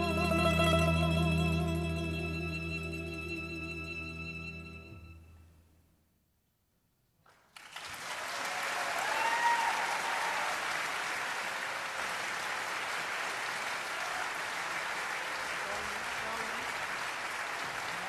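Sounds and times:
audience applause: 7.3s - 18.0s.

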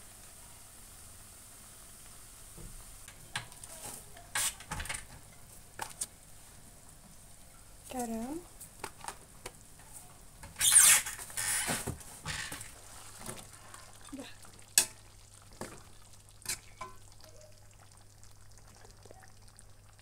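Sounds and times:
chicken feet sizzling in oil: 0.0s - 6.7s, 12.3s - 20.0s.

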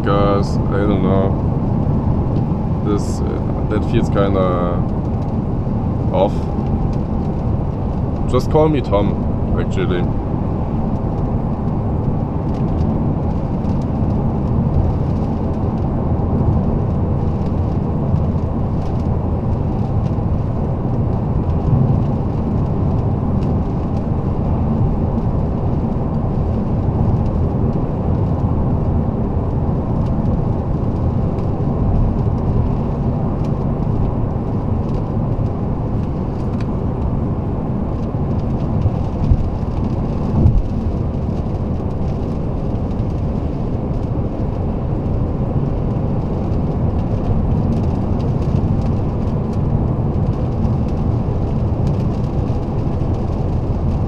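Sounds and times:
car engine and road rumble: 0.0s - 54.0s.

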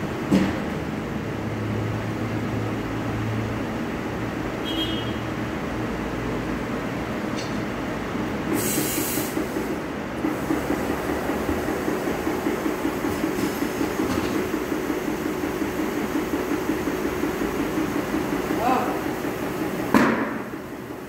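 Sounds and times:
compressed air hiss: 8.5s - 15.2s.

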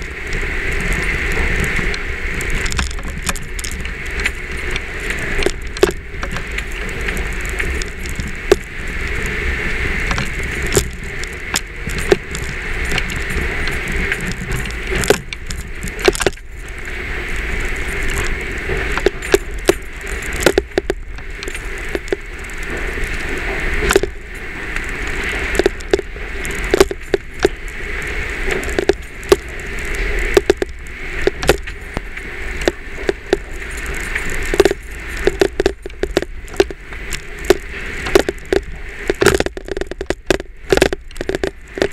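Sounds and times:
camera tapping against windshield: 28.7s - 29.5s, 30.4s - 31.8s, 34.5s - 41.9s.

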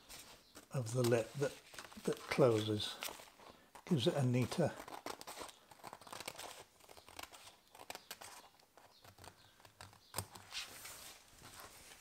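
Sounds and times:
paper rustling: 0.0s - 12.0s
scissors snipping paper: 1.8s - 10.4s.

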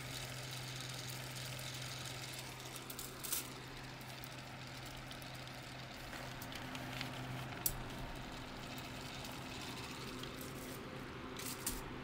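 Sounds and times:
plastic model ticking and rattling: 0.0s - 10.8s
electric fan running: 0.0s - 12.0s.

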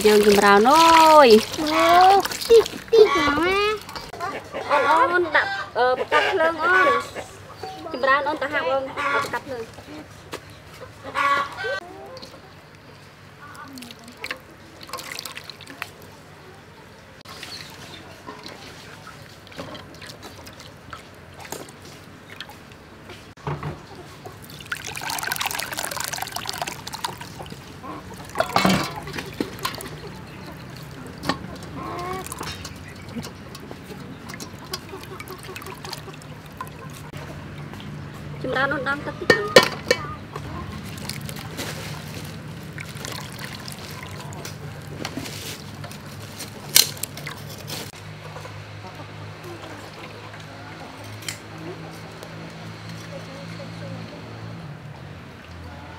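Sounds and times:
hands squeezing wet coconut: 0.0s - 4.2s, 13.4s - 16.2s, 24.3s - 38.0s, 40.6s - 47.9s
squelching and dripping: 0.0s - 4.2s, 13.4s - 16.2s, 17.4s - 22.9s, 24.3s - 38.1s, 40.6s - 46.1s
liquid pouring through a strainer: 13.6s - 16.0s, 24.4s - 37.1s, 40.8s - 45.0s.

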